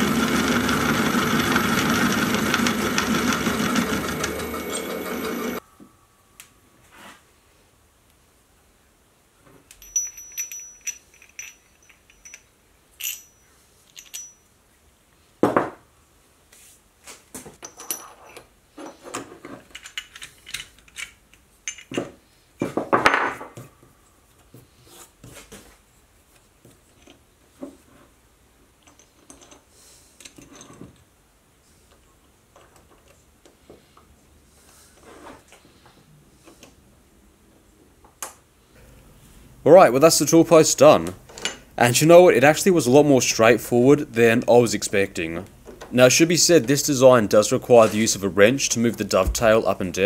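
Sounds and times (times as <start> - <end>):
steel parts clinking and knocking: 9.7 - 14.5, 17.6 - 22.2.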